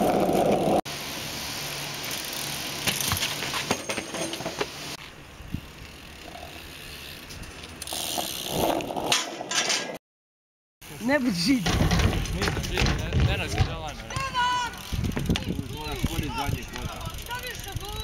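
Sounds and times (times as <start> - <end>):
bike rolling on asphalt: 0.0 - 9.5, 10.8 - 18.0
bike knocking onto steel rail: 2.9 - 4.8, 11.6 - 14.5
bike chain rattling and clicking: 5.6 - 9.2, 10.8 - 18.0.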